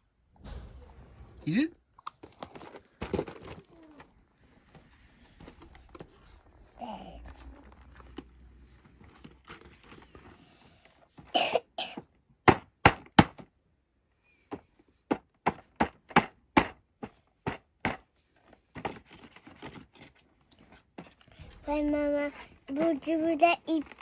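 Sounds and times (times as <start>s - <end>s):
cardboard box and plastic tray handled: 2.2s - 6.6s, 7.2s - 10.4s, 17.4s - 24.0s.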